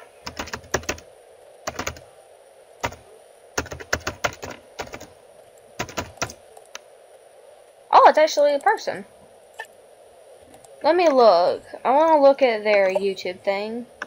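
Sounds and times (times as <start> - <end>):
keyboard typing: 0.2 - 1.0, 1.6 - 2.0, 2.8 - 3.0, 3.6 - 5.1, 5.8 - 6.4.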